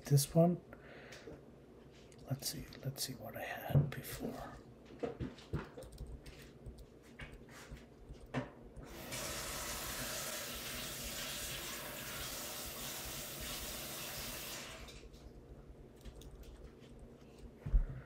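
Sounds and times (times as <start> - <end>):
keyboard clicks: 5.7 - 6.9.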